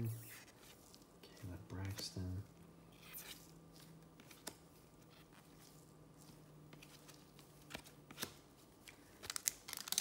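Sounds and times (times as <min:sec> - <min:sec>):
cards being handled: 0:02.9 - 0:10.0.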